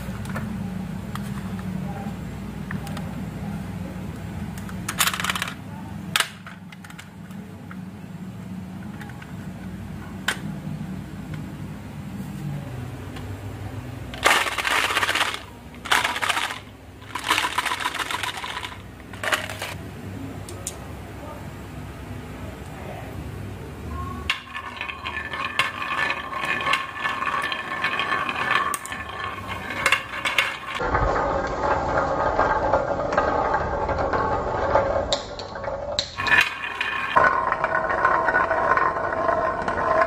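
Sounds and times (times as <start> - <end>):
marbles rattling on wooden track: 4.9 - 5.6, 14.2 - 19.8, 24.3 - 40.0.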